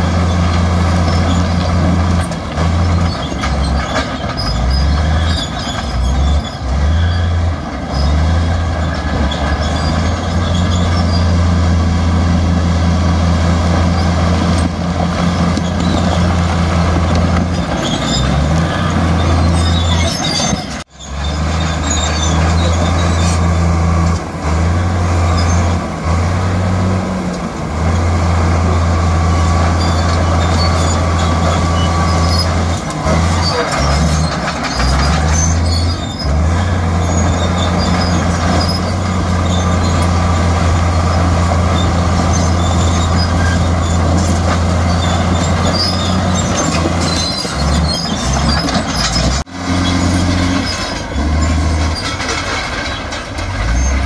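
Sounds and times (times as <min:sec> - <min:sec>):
heavy diesel engine under load: 0:00.0 - 0:54.0
higher clatter: 0:37.1 - 0:54.0.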